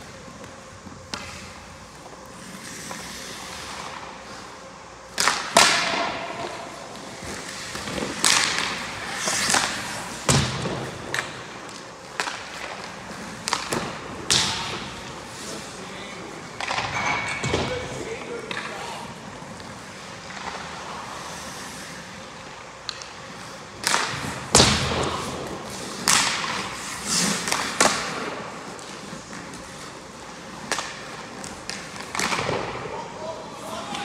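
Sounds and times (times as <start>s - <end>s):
skate blades scraping on ice: 0.0s - 16.9s, 17.7s - 34.0s
puck and stick knocks: 0.4s - 1.5s, 5.1s - 15.2s, 16.5s - 18.8s, 22.8s - 29.8s, 30.6s - 32.9s.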